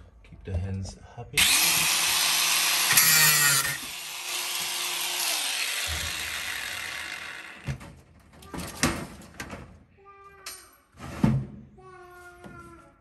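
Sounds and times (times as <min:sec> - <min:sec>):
power tool grinding metal: 0:01.4 - 0:07.7.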